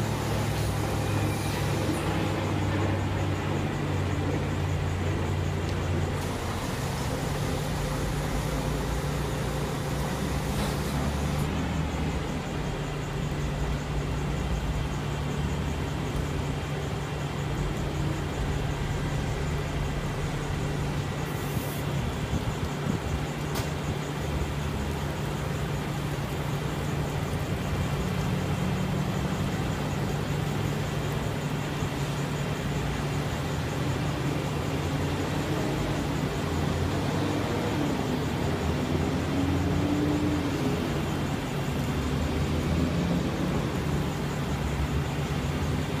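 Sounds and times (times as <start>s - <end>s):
diesel truck engine idling: 0.0s - 22.6s.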